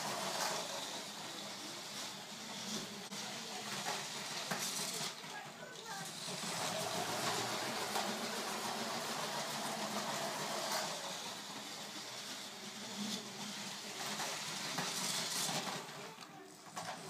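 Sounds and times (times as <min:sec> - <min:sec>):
electric toy train motor whirring: 0:00.0 - 0:17.0
wheels clattering over track joints: 0:00.0 - 0:17.0.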